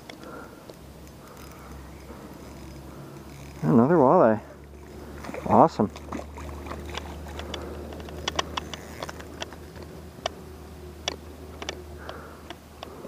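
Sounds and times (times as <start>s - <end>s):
low steady hum: 0.0s - 13.0s
sharp handling clicks and taps: 6.9s - 10.4s, 11.0s - 13.0s.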